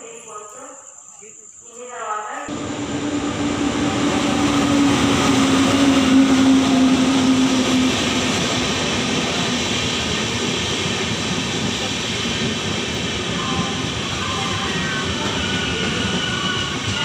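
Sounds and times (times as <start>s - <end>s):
steady low tone: 2.5s - 7.4s
train wheels rumbling on rail: 2.5s - 17.0s.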